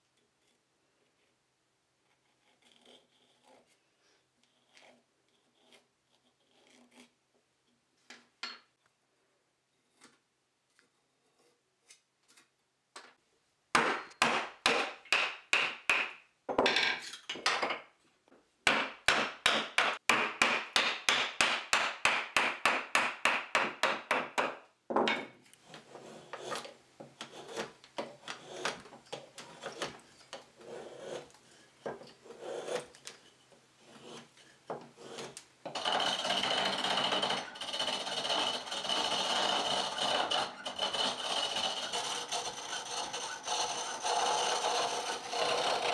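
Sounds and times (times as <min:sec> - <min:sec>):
hand tool striking wood: 0:13.7 - 0:16.2, 0:18.7 - 0:25.3
wood scraping and paring: 0:25.6 - 0:45.9
lathe tool shaving wood: 0:35.1 - 0:45.9.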